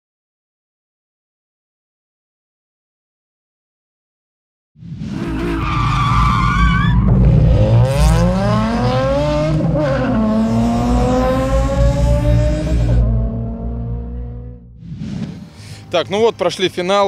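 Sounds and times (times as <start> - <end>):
tyres screeching: 5.2 - 7.1
car engine revving hard: 7.1 - 14.6.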